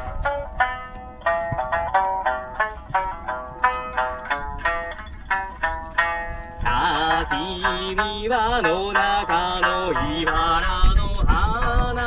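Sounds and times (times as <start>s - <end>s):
plucked three-stringed lute: 0.0s - 12.0s
man singing a folk song: 3.3s - 12.0s.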